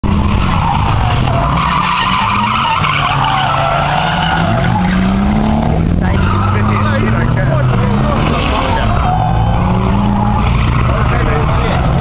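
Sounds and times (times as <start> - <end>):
car engine at high revs: 0.0 - 12.0
tyres squealing: 0.2 - 12.0.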